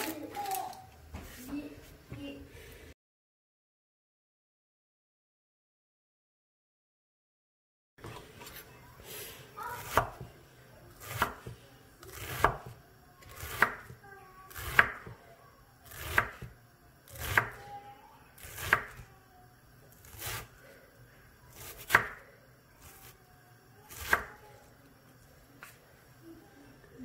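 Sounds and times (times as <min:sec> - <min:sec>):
knife chopping on wooden board: 0:09.8 - 0:10.3, 0:11.0 - 0:12.7, 0:13.3 - 0:15.1, 0:15.9 - 0:16.5, 0:17.1 - 0:17.6, 0:21.6 - 0:22.2, 0:23.9 - 0:24.4.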